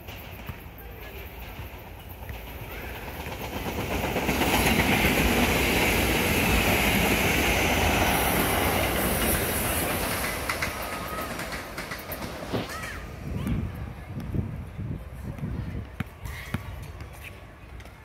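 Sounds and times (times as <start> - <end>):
train passing at speed: 0.0 - 15.2.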